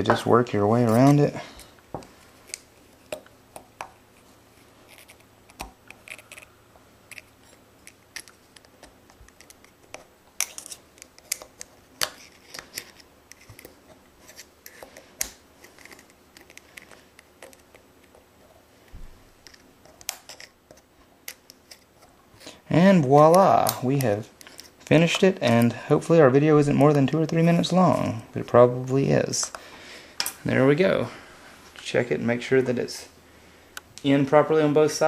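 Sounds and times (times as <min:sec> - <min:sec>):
small metallic clicks and scratches: 0:04.9 - 0:18.2, 0:19.4 - 0:22.1.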